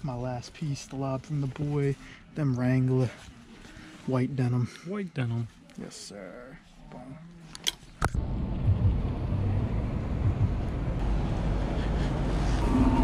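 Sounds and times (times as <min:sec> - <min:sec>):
road traffic rumble: 0:08.2 - 0:13.0.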